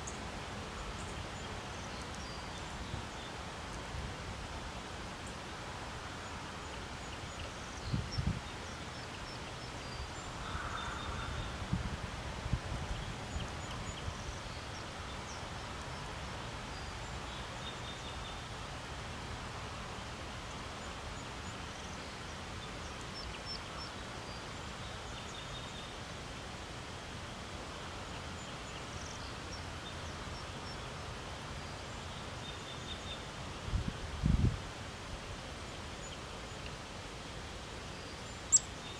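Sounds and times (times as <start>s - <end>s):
outdoor background noise: 0.0s - 38.9s
small birds chirping: 37.8s - 38.9s.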